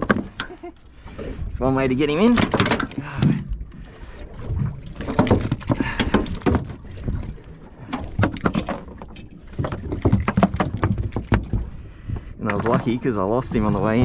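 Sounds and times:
fish knocking and thumping on deck: 0:00.0 - 0:00.6, 0:02.2 - 0:03.6, 0:05.0 - 0:07.3, 0:07.9 - 0:11.8.

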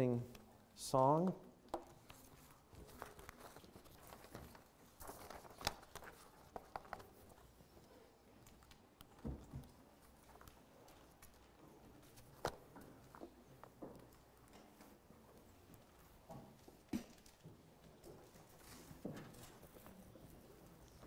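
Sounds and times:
paper rustling: 0:01.9 - 0:08.8, 0:18.2 - 0:21.0.

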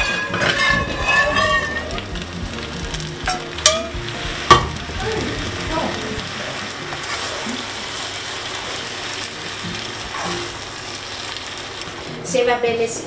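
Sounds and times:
pasta sizzling in a frying pan: 0:00.0 - 0:13.0
sharp knock: 0:04.5 - 0:04.8.

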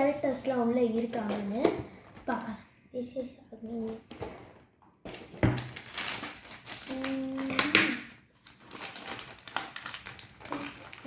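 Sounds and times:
plastic wrapper crinkling: 0:00.8 - 0:02.4, 0:03.8 - 0:11.0.

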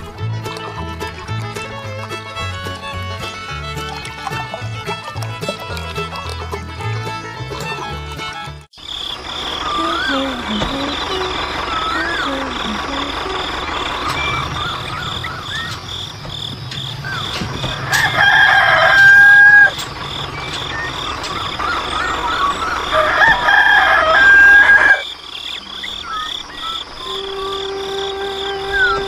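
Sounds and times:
rooster crowing: 0:17.7 - 0:19.8, 0:21.6 - 0:25.1.

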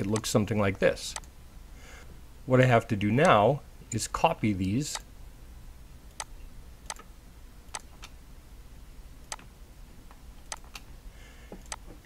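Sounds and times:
faint low hum: 0:00.0 - 0:12.0
computer mouse clicking: 0:07.7 - 0:08.2, 0:09.3 - 0:09.5, 0:10.4 - 0:10.9, 0:11.6 - 0:12.0.

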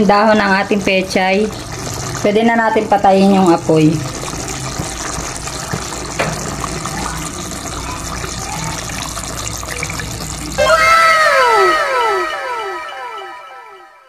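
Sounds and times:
stew bubbling in a pot: 0:00.0 - 0:10.6
falling chime sound effect: 0:10.6 - 0:14.0.

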